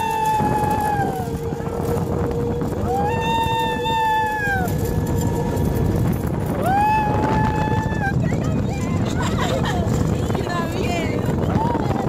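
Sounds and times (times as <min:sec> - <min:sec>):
people screaming: 0:00.0 - 0:09.2
moving vehicle: 0:00.0 - 0:12.0
wind rumble: 0:00.0 - 0:12.0.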